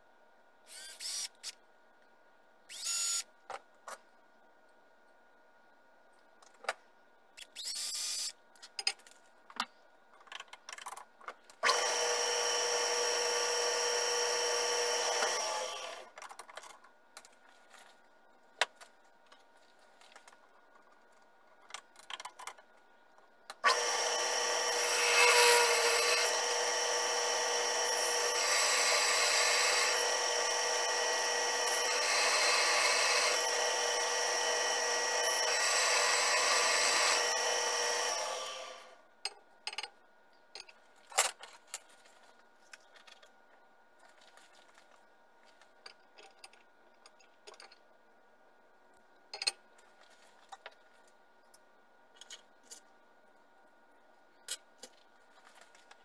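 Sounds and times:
drill press cutting metal: 11.6s - 16.0s, 23.6s - 38.9s.

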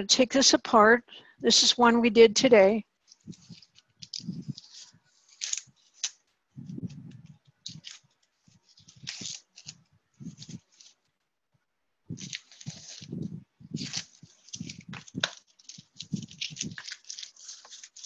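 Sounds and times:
scraping and rustling: 3.0s - 11.1s, 12.1s - 18.0s.

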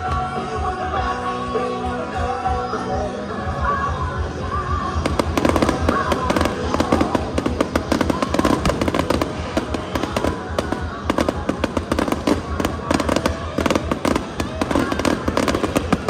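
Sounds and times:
loud show music: 0.0s - 16.0s
fireworks crackling and popping: 4.9s - 16.0s.

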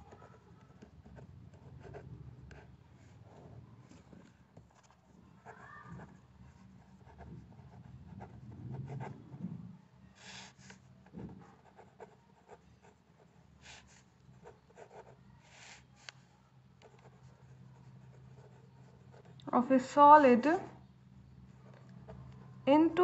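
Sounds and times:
pen scratching on paper: 0.0s - 3.6s, 4.7s - 9.4s, 10.2s - 16.1s, 16.8s - 19.4s
low steady hum: 0.0s - 23.0s.

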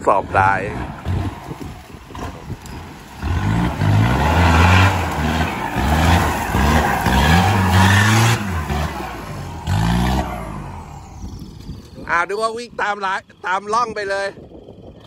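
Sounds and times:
diesel engine revving hard: 0.0s - 11.8s.

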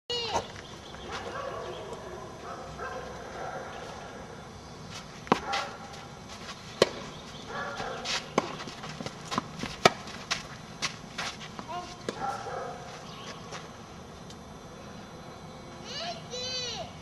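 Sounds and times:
tennis racket hitting ball: 5.3s - 6.0s, 6.8s - 7.1s, 7.8s - 12.4s.

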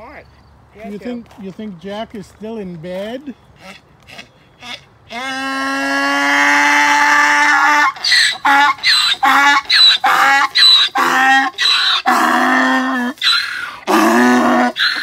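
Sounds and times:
donkey braying: 3.5s - 15.0s.

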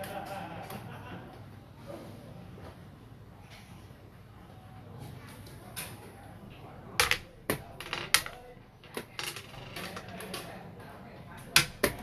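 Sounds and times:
game pieces clacking: 7.0s - 10.5s.

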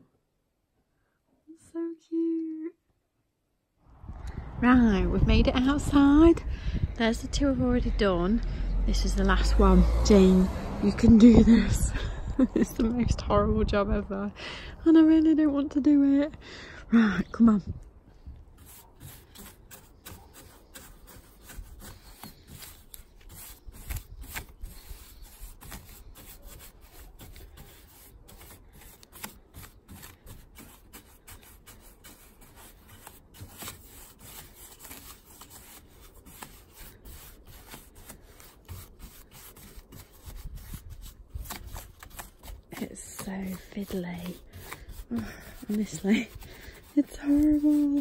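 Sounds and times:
paintbrush scrubbing wood: 18.5s - 48.0s.

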